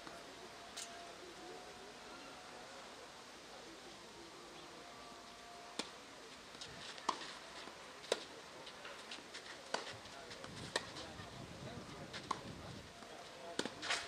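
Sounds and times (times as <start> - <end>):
faint outdoor background: 0.0 - 14.0
tennis ball struck by racket: 13.5 - 14.0.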